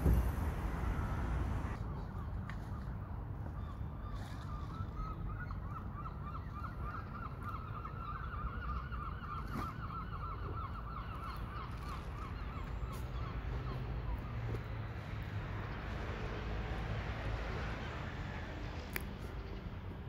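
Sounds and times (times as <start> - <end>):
steady low rumble: 0.0 - 1.8.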